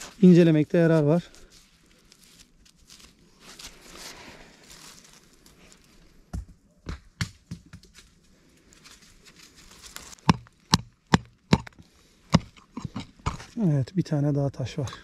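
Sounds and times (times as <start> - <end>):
hand pick striking stony soil: 10.1 - 13.6.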